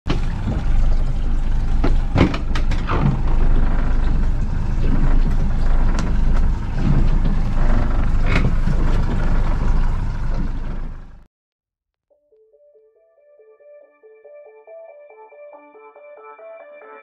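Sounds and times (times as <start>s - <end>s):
engine low rumble: 0.1s - 11.3s.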